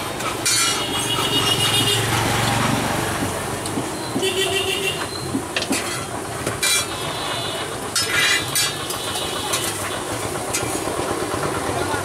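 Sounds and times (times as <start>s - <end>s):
engines running: 0.0s - 12.0s
traffic: 0.0s - 12.0s
cooking utensils clinking: 0.2s - 1.9s, 5.0s - 7.1s, 7.8s - 10.9s.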